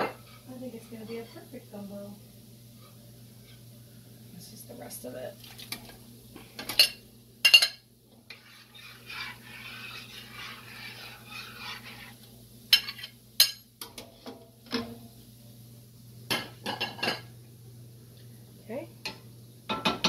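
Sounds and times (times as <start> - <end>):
soft scraping stir: 2.7 - 3.8, 8.2 - 13.2.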